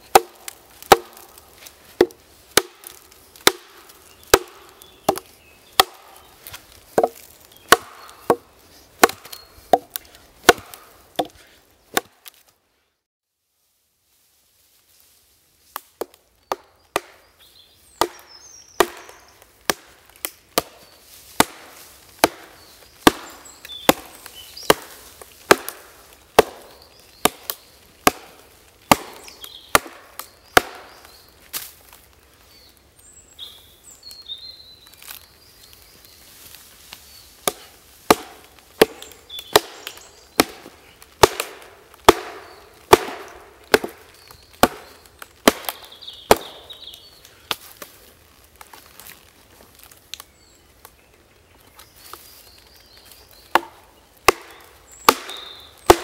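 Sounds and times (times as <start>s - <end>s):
axe chopping into log: 0.1s - 1.3s, 1.9s - 8.4s, 9.0s - 12.4s, 18.0s - 19.9s, 21.4s - 25.8s, 26.4s - 31.0s, 37.4s - 44.0s, 44.6s - 46.6s, 53.5s - 56.0s.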